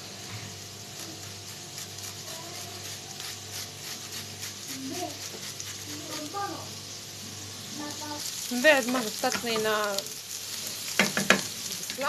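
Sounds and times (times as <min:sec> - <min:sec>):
onions sizzling in oil: 0:00.0 - 0:12.0
garlic rasped on metal grater: 0:00.9 - 0:06.4.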